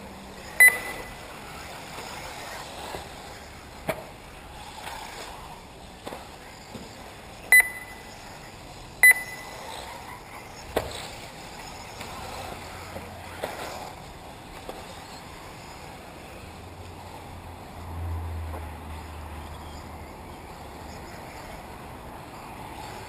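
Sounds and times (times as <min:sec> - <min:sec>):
electric rc cars running: 0:00.0 - 0:23.0
high-pitched electronic beeps: 0:00.5 - 0:01.2, 0:07.5 - 0:08.2, 0:09.0 - 0:09.6.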